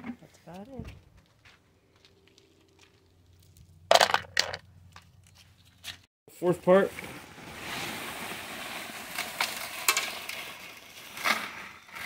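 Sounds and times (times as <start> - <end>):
stones clicking: 2.0 - 5.1
dirt sliding onto mesh screen: 6.9 - 12.0.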